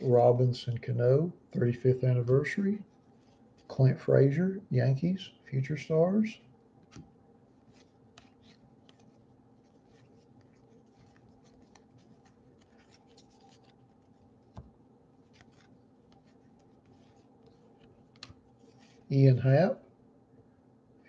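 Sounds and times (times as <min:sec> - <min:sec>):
cards rustling against each other: 0:02.5 - 0:03.9, 0:06.8 - 0:19.3.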